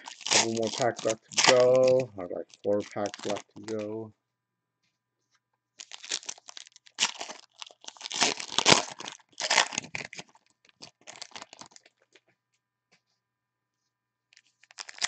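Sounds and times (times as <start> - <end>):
foil wrapper tearing and crinkling: 0.0 - 4.0, 5.8 - 12.2, 14.4 - 15.0.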